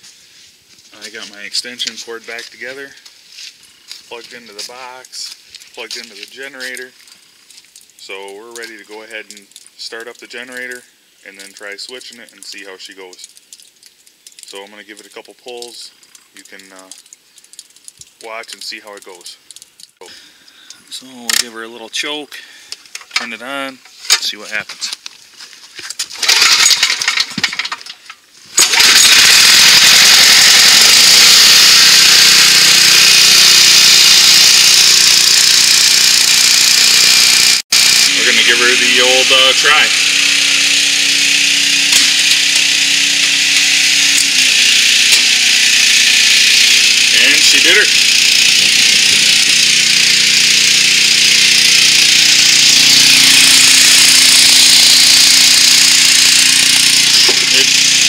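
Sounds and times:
pull-start rattling and clicking: 25.9s - 58.0s
generator engine running: 28.6s - 58.0s.

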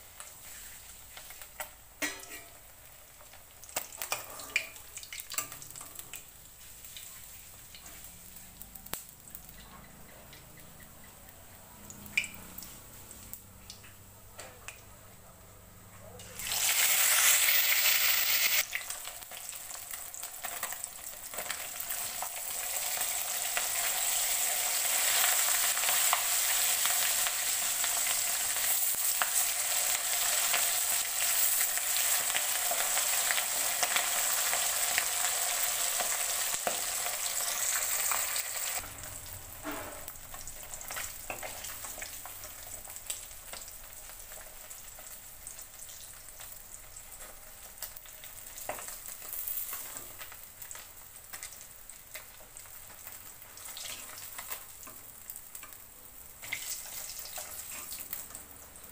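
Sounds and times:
fish sizzling in hot oil: 0.0s - 9.7s, 16.4s - 58.9s
steel spoon scraping pan: 2.0s - 2.6s.

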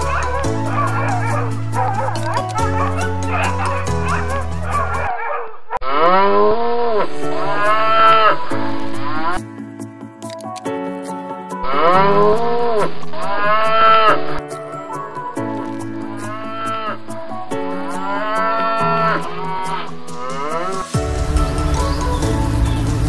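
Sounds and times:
background music: 0.0s - 5.2s, 5.8s - 23.0s
cattle mooing: 5.8s - 8.5s, 11.6s - 14.4s, 16.2s - 17.0s, 18.0s - 20.9s.

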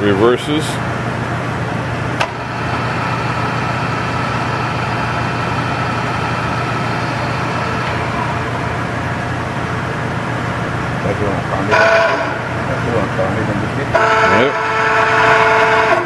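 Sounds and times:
drill press motor hum: 2.1s - 10.9s
high whine: 2.2s - 16.0s.

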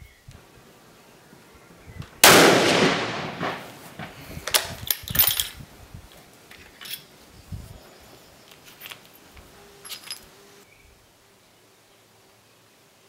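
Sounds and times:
rifle shot echoing: 2.2s - 4.2s.

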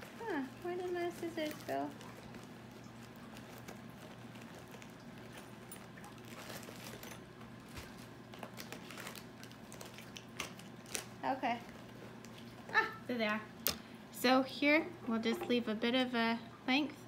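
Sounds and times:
clicks and rustles of handling: 0.0s - 12.8s.

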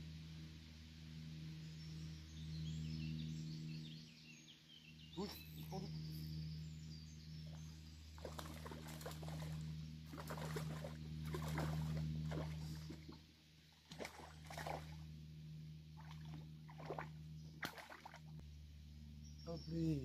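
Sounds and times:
steady low hum: 0.0s - 20.0s
water splashing and sloshing: 8.1s - 15.2s, 15.9s - 18.4s.

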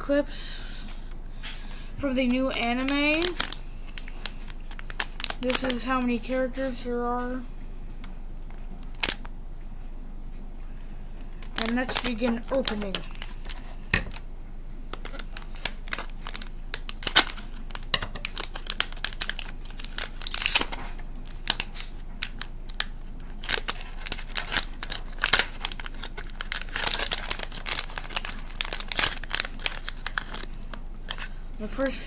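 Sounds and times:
foil bag crinkling: 2.1s - 6.2s, 11.2s - 14.2s, 14.9s - 32.0s
foil bag tearing: 11.6s - 13.8s, 15.0s - 31.9s.

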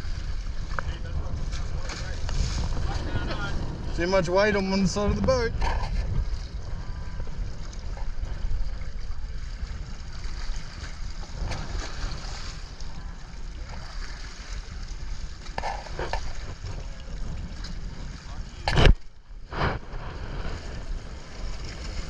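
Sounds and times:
steady low rumble: 0.0s - 22.0s
water slapping against hull: 0.0s - 22.0s
wind buffeting microphone: 0.0s - 22.0s.

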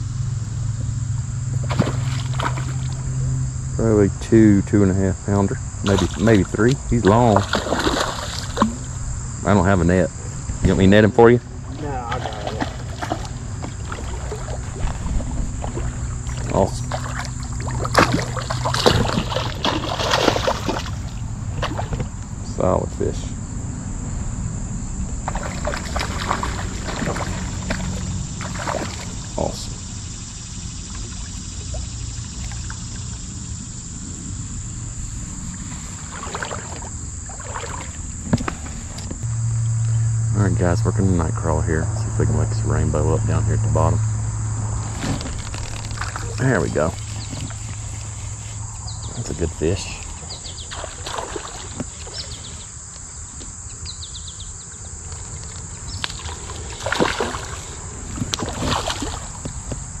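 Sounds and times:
high insect drone: 0.0s - 60.0s
wind: 0.0s - 60.0s
moving water: 0.7s - 3.3s, 4.1s - 23.3s, 25.0s - 39.2s, 44.6s - 52.8s, 55.0s - 60.0s
fish splashing at surface: 1.6s - 3.1s, 7.3s - 8.9s, 12.0s - 22.0s, 25.2s - 29.3s, 35.5s - 38.7s, 50.7s - 52.2s, 56.1s - 59.4s.

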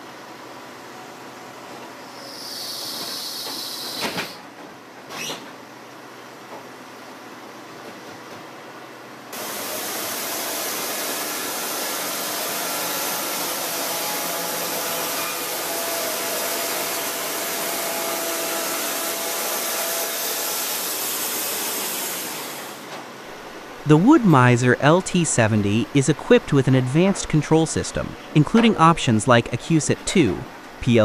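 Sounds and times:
band saw blade cutting log: 9.4s - 22.8s.

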